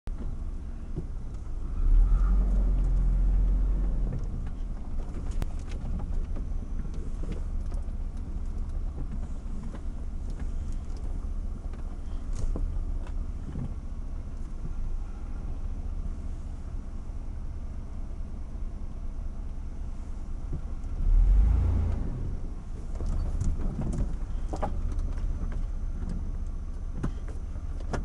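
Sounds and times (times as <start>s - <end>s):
knocks and clatter through body: 0.1s - 1.6s, 2.4s - 14.9s, 22.6s - 28.0s
truck engine running low: 0.1s - 28.0s.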